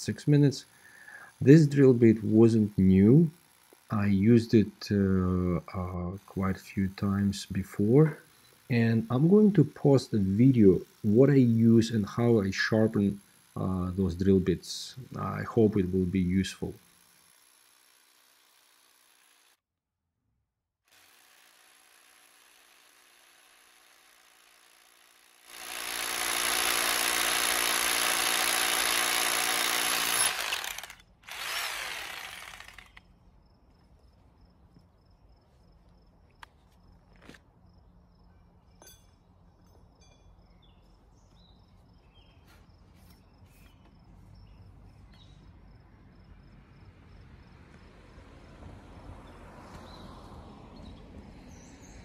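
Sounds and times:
rotary hammer drilling into stone: 8.2s - 14.4s, 16.7s - 19.6s, 20.9s - 33.0s.

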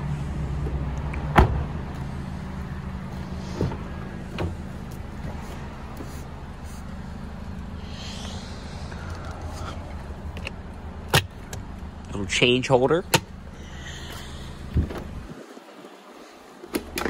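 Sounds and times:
steady low hum: 0.0s - 15.4s
car door slamming: 1.3s - 1.7s, 3.5s - 4.6s.

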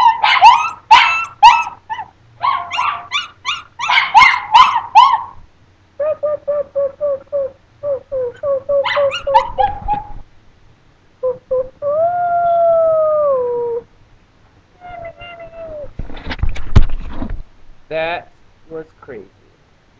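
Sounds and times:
dog howling: 0.0s - 5.4s, 8.2s - 10.1s
dog yipping: 0.0s - 5.4s, 8.3s - 10.2s.

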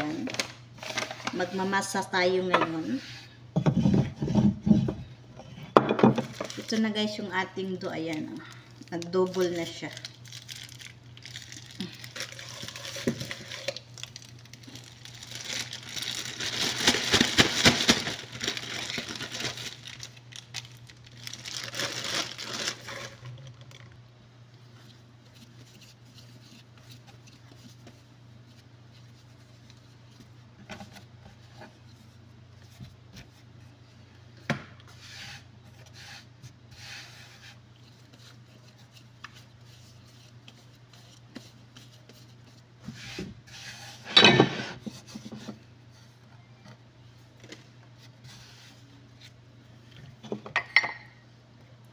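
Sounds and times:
plastic bag crinkling: 6.2s - 7.0s, 8.1s - 24.0s
soft handling of dough: 19.8s - 44.1s, 44.8s - 50.3s.

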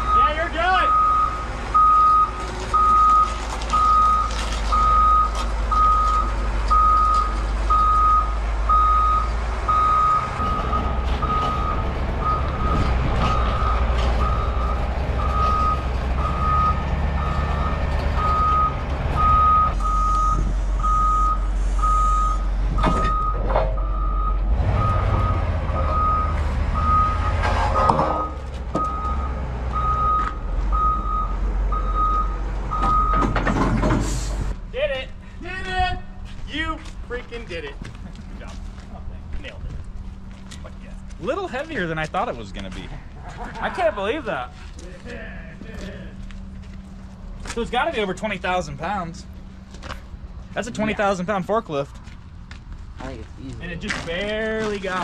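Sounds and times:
backup alarm beeping: 0.0s - 33.4s
diesel engine rumble: 0.0s - 55.0s.

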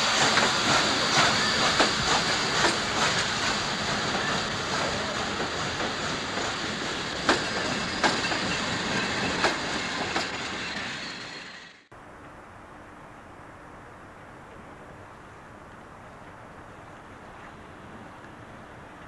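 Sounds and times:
steam hissing: 0.0s - 11.7s.

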